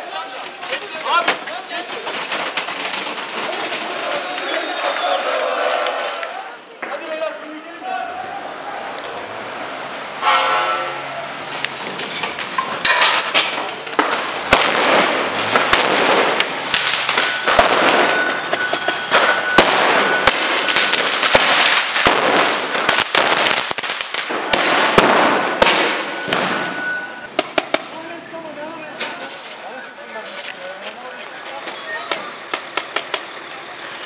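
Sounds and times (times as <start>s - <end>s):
fireworks bangs: 0.0s - 7.4s, 9.9s - 28.3s
firecrackers crackling: 0.0s - 7.6s, 8.4s - 34.0s.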